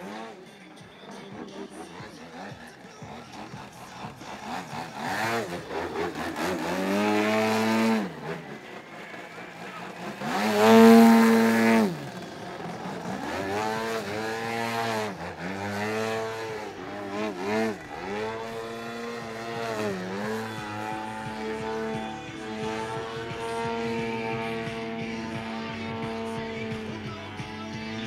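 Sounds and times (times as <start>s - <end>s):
model plane engine: 0.0s - 28.0s.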